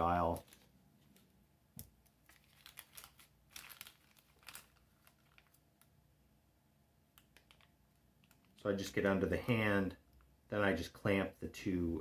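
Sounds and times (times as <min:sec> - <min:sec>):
plastic bag crinkling: 0:00.0 - 0:01.4, 0:02.0 - 0:06.0, 0:07.2 - 0:08.7.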